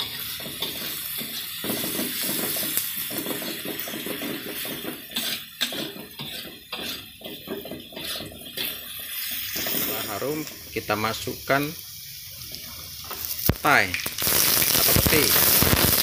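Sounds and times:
metal spatula scraping a wok: 0:00.0 - 0:10.5
shallots sizzling in oil: 0:00.0 - 0:16.0.

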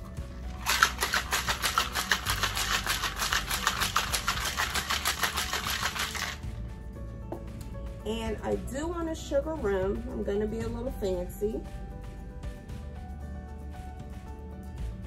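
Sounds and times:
ice rattling in cocktail shaker: 0:00.4 - 0:06.4.

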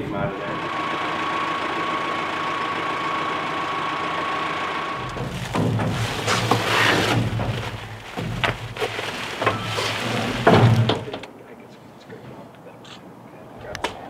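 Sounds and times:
engine idling: 0:00.0 - 0:11.2
knocks on wooden frame: 0:05.0 - 0:09.6
plastic wrap crinkling: 0:05.1 - 0:11.2.

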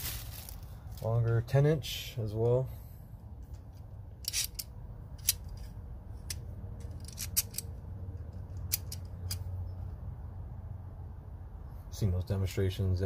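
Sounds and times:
pliers clicking: 0:04.2 - 0:07.7, 0:08.6 - 0:09.4.

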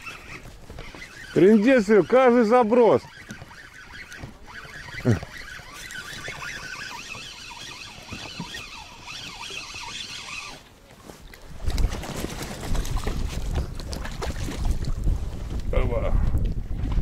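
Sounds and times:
birds calling: 0:00.0 - 0:10.6.

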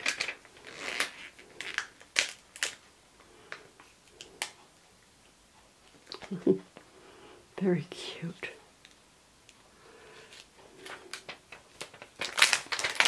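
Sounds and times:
plastic sheets crinkling and clicking: 0:00.0 - 0:04.7, 0:10.2 - 0:13.0.

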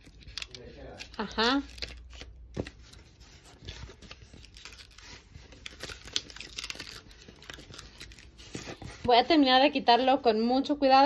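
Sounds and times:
latex peeling and crackling: 0:03.5 - 0:08.8.

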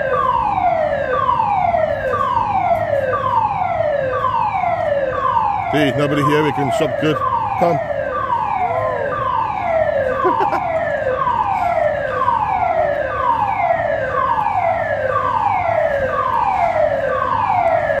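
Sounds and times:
electronic evacuation alarm tone: 0:00.0 - 0:18.0.

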